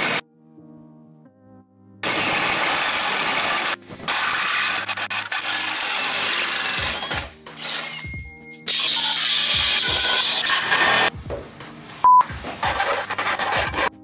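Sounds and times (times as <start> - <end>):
drill with hole saw cutting metal: 2.0 - 8.0, 8.7 - 11.1
grinder cutting steel: 2.0 - 8.0, 8.7 - 11.1.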